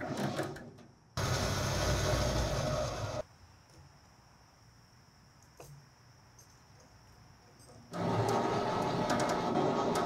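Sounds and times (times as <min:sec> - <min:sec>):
electric winch running: 0:01.2 - 0:03.2, 0:07.9 - 0:10.0.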